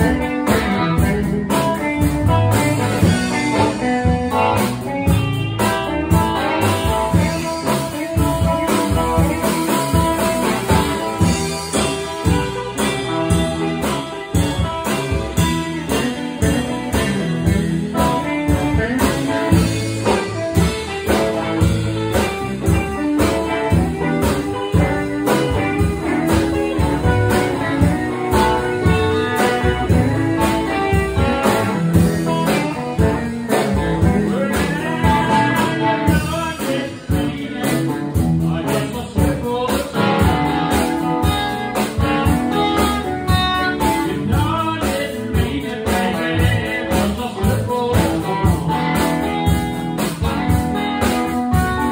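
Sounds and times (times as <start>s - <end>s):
electric guitars: 0.0s - 51.9s
live blues band playing: 0.0s - 51.9s.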